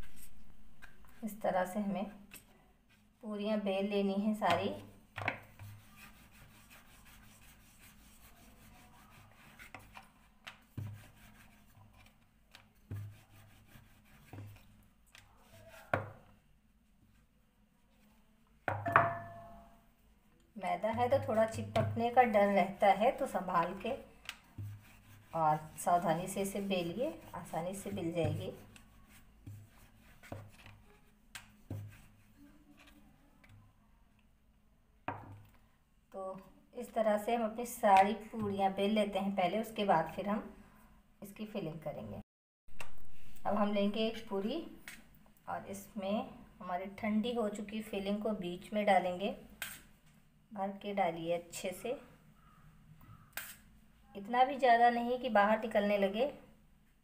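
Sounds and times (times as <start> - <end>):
rolling pin rubbing on dough: 5.5 - 16.3, 20.7 - 32.9
rolling pin knocking on board: 18.7 - 19.5.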